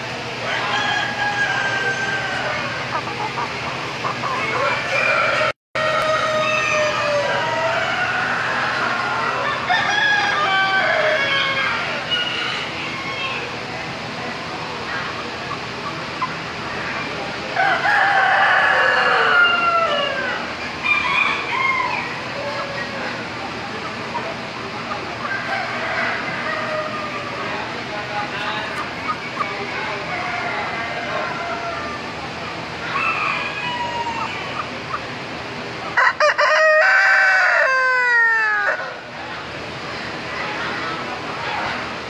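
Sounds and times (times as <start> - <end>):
rooster crowing: 0.4 - 2.7, 4.6 - 11.8, 17.6 - 22.2, 25.3 - 27.3, 32.9 - 34.6, 36.0 - 39.0.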